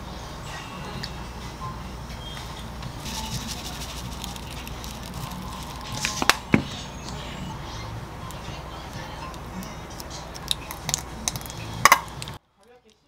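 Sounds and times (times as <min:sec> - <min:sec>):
low steady hum: 0:00.0 - 0:13.0
grinder crackly ticking: 0:03.0 - 0:06.4.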